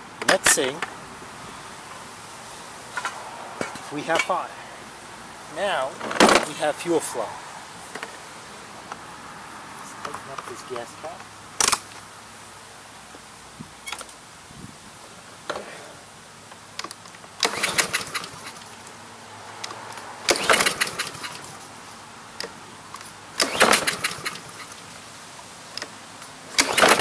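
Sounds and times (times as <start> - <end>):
lawn mower engine cranking: 5.9 - 6.6, 11.6 - 12.0, 16.6 - 18.9, 19.6 - 25.0, 25.7 - 27.0.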